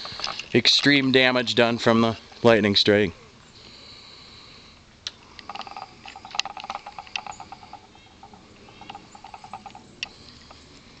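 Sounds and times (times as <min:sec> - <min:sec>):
sharp clicks: 0:05.0 - 0:10.8
animal rapid chattering call: 0:05.4 - 0:10.6.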